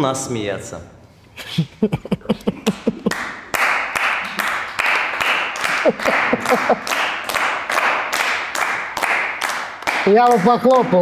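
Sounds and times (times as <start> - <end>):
man laughing: 1.4 - 3.3, 5.7 - 7.0
people clapping: 2.6 - 11.0.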